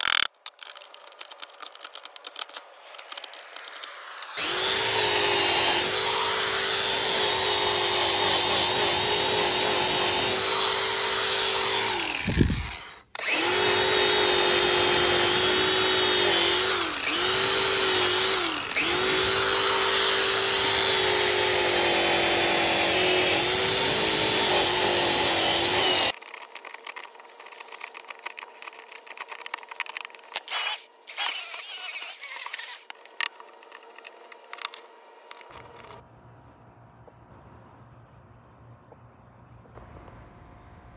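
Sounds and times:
angle grinder grinding wood: 0:00.0 - 0:36.0
hand scratching rotten wood: 0:25.9 - 0:36.0.

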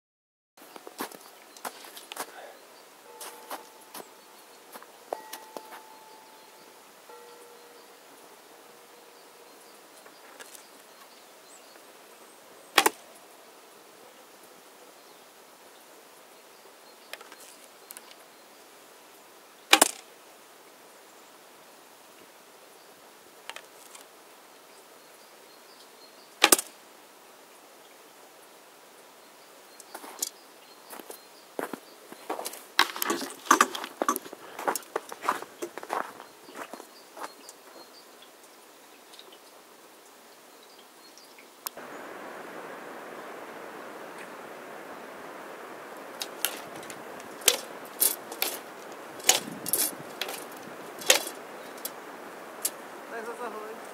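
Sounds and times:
faint arrow clicks: 0:46.0 - 0:52.0.

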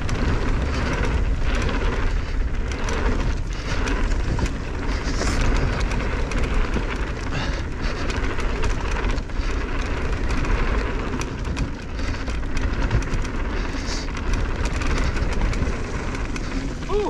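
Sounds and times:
bike clicks and rattles: 0:00.0 - 0:17.0
bike tyre rumble: 0:00.0 - 0:17.0
wind buffeting microphone: 0:00.0 - 0:17.0.

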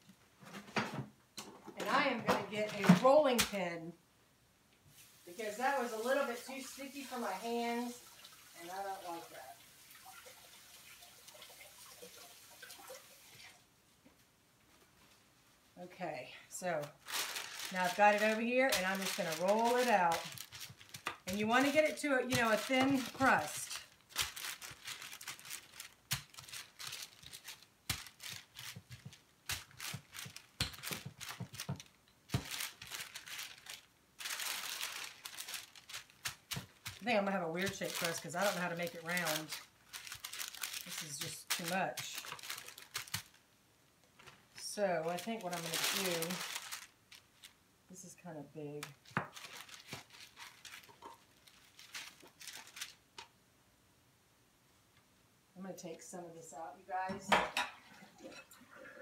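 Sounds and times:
parchment paper crinkling: 0:16.6 - 0:43.5, 0:44.1 - 0:47.6, 0:48.8 - 0:53.3.

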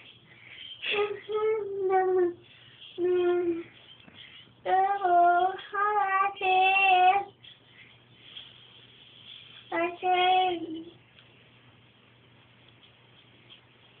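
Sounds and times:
young child singing: 0:00.8 - 0:02.4, 0:03.0 - 0:03.8, 0:04.6 - 0:07.4, 0:09.7 - 0:11.0.

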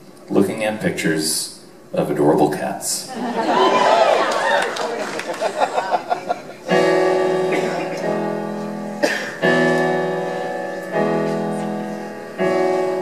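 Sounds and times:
piano chords: 0:05.4 - 0:13.0.

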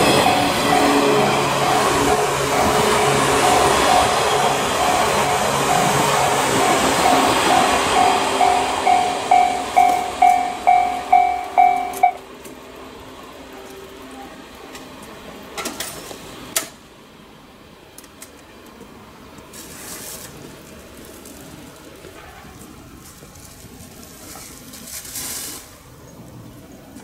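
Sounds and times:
level crossing alarm ringing: 0:00.0 - 0:12.3
faint train running noise: 0:00.0 - 0:27.0.

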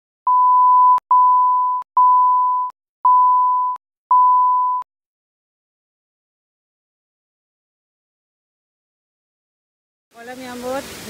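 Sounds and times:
loud steady beeps: 0:00.3 - 0:04.8.

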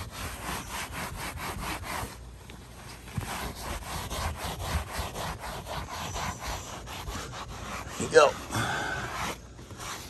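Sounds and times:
paper towel scrubbing a roof: 0:00.0 - 0:10.0.

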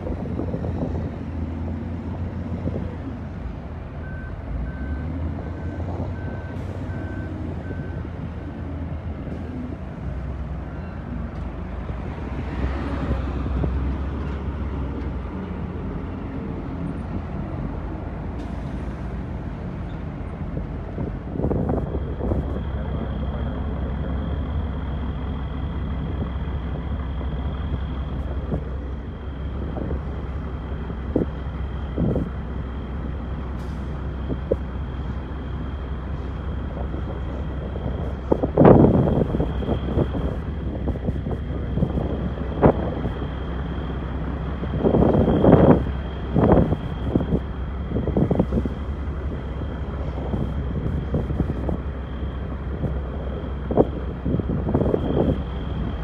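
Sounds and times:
diesel truck engines running: 0:00.0 - 0:56.0
truck passing close: 0:00.0 - 0:56.0
reversing alarm beeping: 0:04.0 - 0:08.2, 0:44.8 - 0:48.6
steady high whine: 0:21.0 - 0:56.0.

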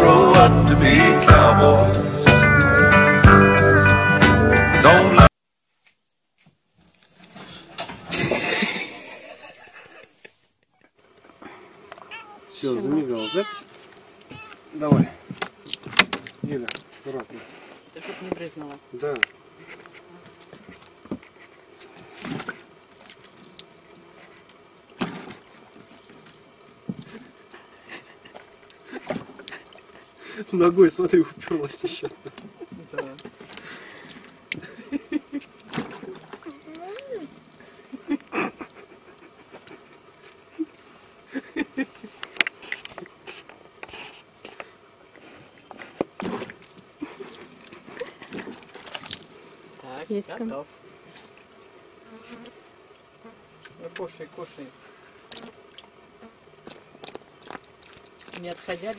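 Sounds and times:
cat paws splashing water in bucket: 0:48.3 - 0:49.3.

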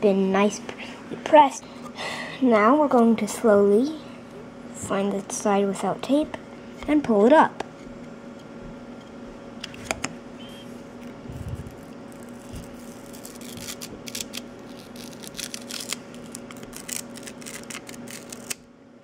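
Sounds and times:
steady low hum: 0:00.0 - 0:19.0
plastic film crackling as peeled: 0:11.6 - 0:18.7.

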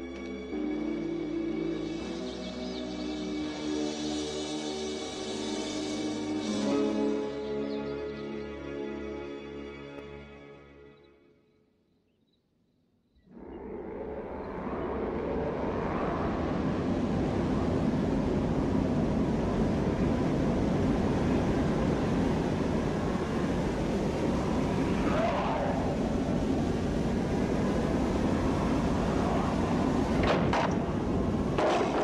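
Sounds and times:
low rushing roar: 0:13.3 - 0:32.0
wavering moan: 0:24.9 - 0:26.2
sharp bangs: 0:31.5 - 0:32.0.

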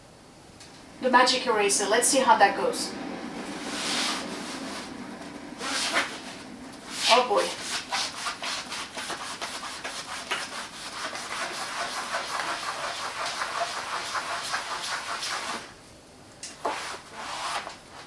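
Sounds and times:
sponge scrubbing a wall: 0:05.6 - 0:06.3, 0:06.9 - 0:15.7, 0:16.6 - 0:17.8.

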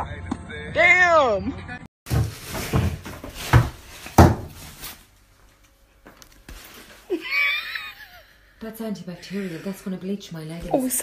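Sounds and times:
dull knocks and thuds: 0:02.1 - 0:04.7.

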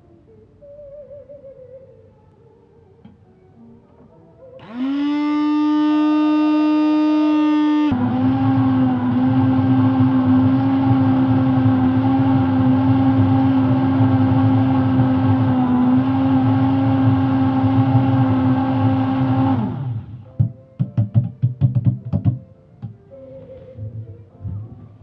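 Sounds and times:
immersion blender running: 0:04.6 - 0:20.3.

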